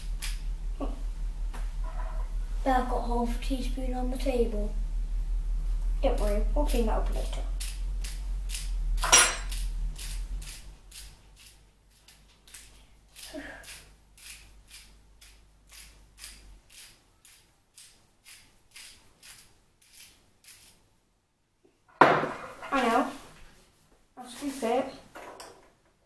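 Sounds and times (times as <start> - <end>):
salt grinder crunching: 7.5 - 20.7.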